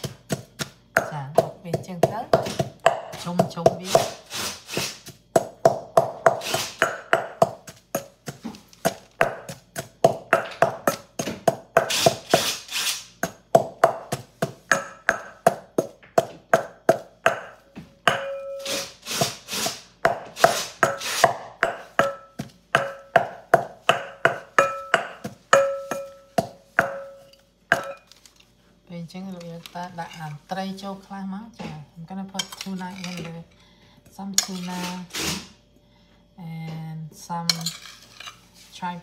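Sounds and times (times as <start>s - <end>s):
pestle pounding in metal mortar: 0.0s - 12.6s, 13.2s - 28.2s.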